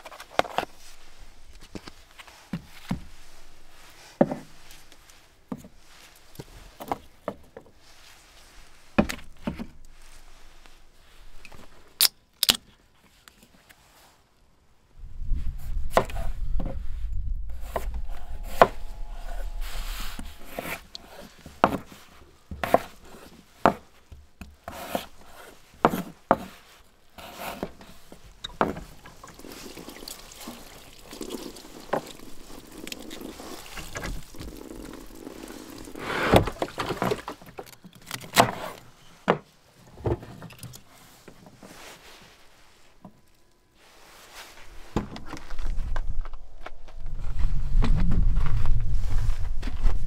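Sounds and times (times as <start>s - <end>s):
low rumble: 16.4s - 21.2s.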